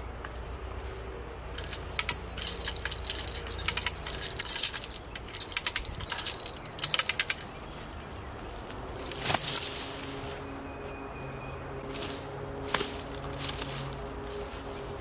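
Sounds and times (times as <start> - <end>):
ratchet clicking under load: 1.6 - 7.6.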